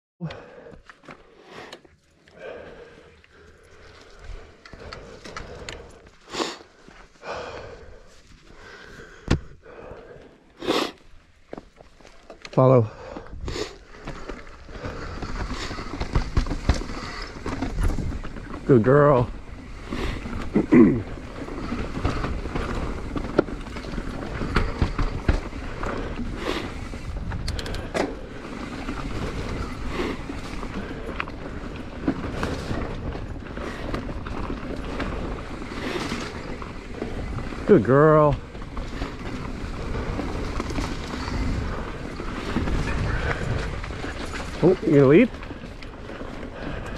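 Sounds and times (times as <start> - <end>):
breathing and sniffing: 0.2 - 11.2, 12.9 - 17.7, 24.0 - 37.3
sharp breaths: 0.2 - 11.2, 12.8 - 18.6, 23.8 - 37.6
bike tyres rolling on dirt: 0.3 - 46.9
bike rattling over bumps: 0.4 - 10.4, 11.0 - 46.9.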